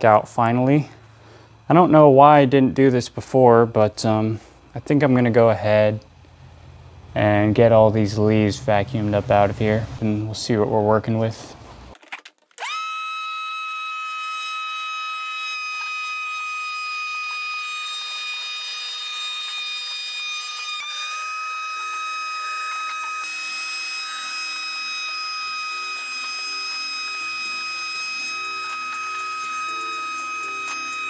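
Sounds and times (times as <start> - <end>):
shop vac motor whining: 12.6 - 31.0.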